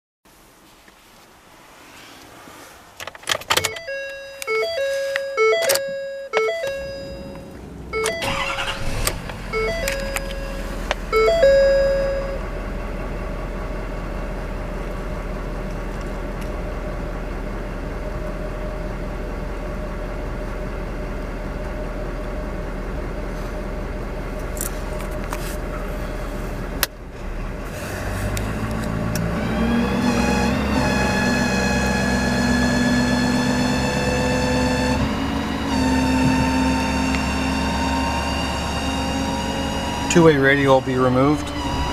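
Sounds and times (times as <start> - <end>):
diesel engine cranking and idling: 2.9 - 41.9
dashboard warning chime: 3.6 - 12.5.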